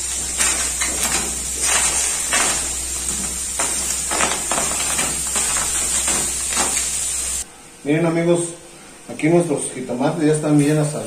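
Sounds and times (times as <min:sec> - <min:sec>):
food sizzling and crackling in oil: 0:00.0 - 0:07.4.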